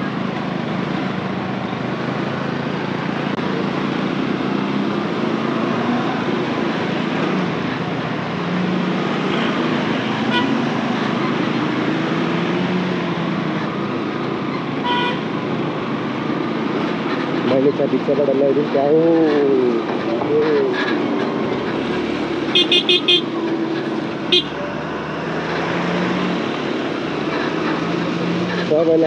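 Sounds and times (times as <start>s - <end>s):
road and wind noise: 0.0s - 29.0s
vehicle horn toot: 10.2s - 10.6s, 14.8s - 15.2s, 22.5s - 23.3s, 24.3s - 24.7s.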